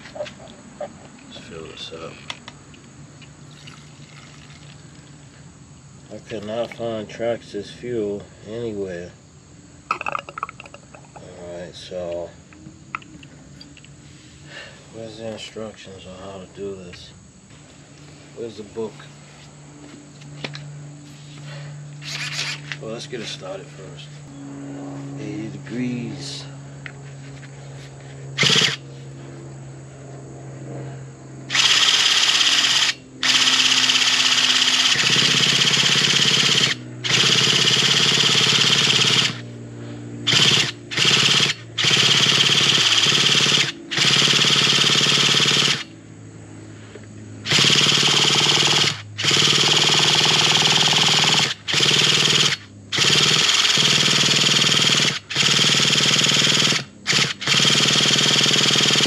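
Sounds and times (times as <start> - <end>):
electric starter spinning engine: 20.2 - 24.0, 28.3 - 28.9, 31.5 - 46.0, 47.4 - 59.0.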